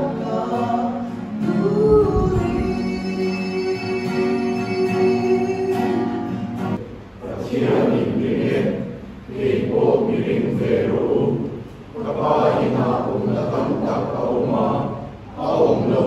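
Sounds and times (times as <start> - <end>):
choir singing: 0.0 - 5.0, 7.2 - 16.0.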